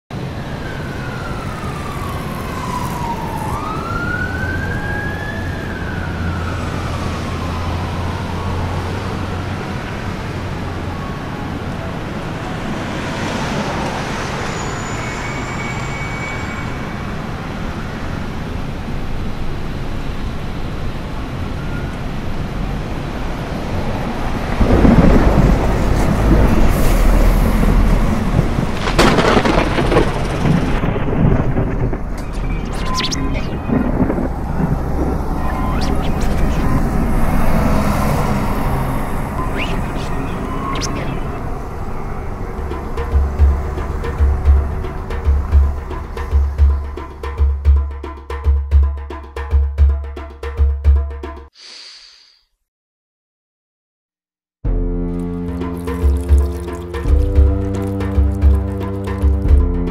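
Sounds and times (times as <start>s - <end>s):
city traffic hum: 0.1s - 48.5s
siren wailing: 0.2s - 12.8s, 30.9s - 46.5s
thunder rumble: 24.2s - 47.2s.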